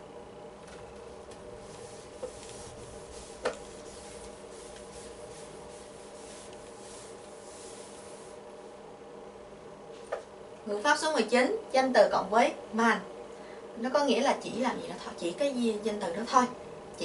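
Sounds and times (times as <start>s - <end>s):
sponge wiping chalkboard: 1.6s - 8.4s.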